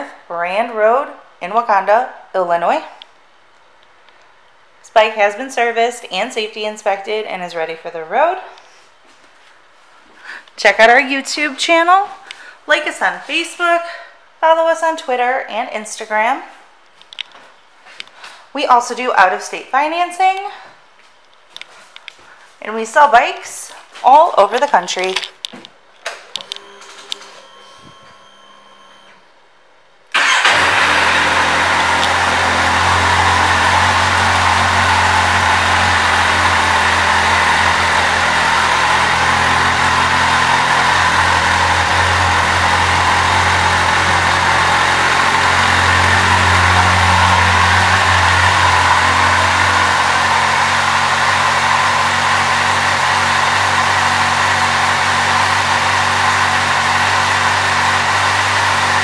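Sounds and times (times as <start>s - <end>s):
motorcycle engine starting and idling: 26.4s - 29.1s, 30.1s - 59.0s.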